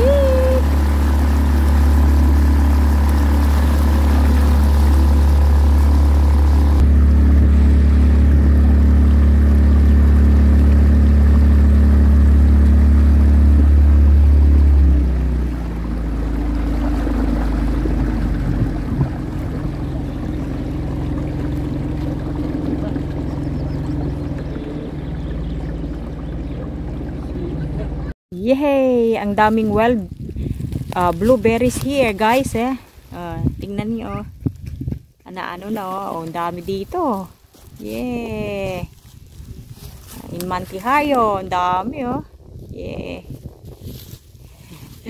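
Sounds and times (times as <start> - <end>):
motorboat engine drone: 0.0 - 28.2.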